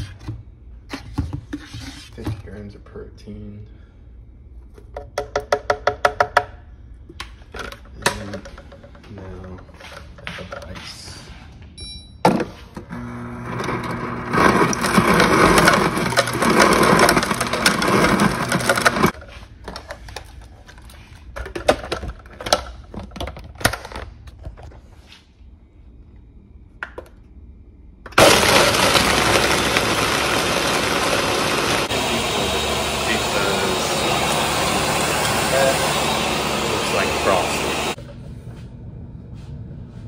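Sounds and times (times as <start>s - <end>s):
blender crushing ice: 12.9s - 19.2s, 28.2s - 38.0s.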